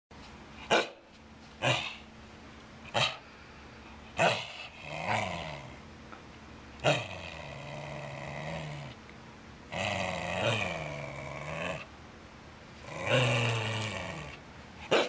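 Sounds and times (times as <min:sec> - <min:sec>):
dog barking muffled: 0:00.7 - 0:01.0
dog low drawn-out vocal sound: 0:06.8 - 0:09.0, 0:09.7 - 0:11.9, 0:12.8 - 0:15.0.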